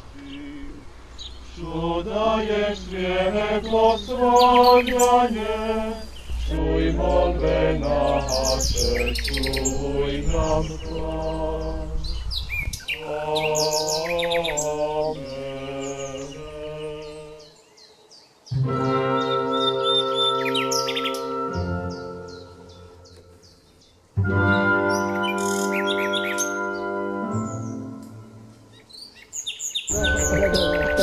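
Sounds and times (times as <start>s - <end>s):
low rumble: 0.0s - 12.9s
birds chirping: 0.0s - 31.0s
men singing a hymn: 0.1s - 12.3s, 12.9s - 17.6s, 29.9s - 31.0s.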